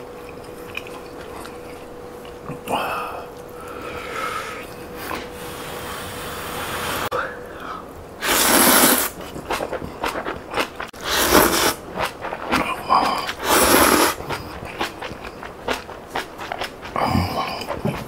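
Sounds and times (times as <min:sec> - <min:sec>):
chewing and mouth clicks: 0:00.0 - 0:03.8, 0:09.2 - 0:18.0
person slurping noodles: 0:08.2 - 0:18.0.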